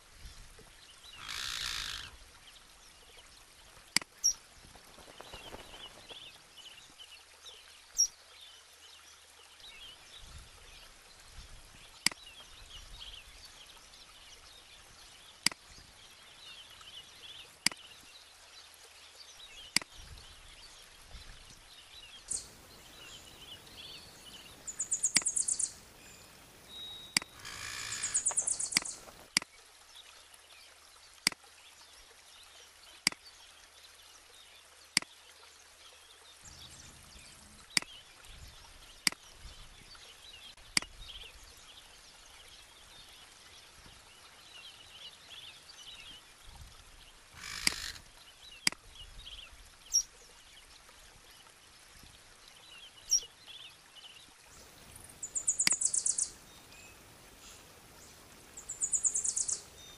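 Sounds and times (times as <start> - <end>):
faint outdoor hiss: 0.0 - 59.9
birds chirping: 4.2 - 6.7, 22.1 - 29.3, 54.5 - 59.9
loud high bird trills: 24.7 - 29.0.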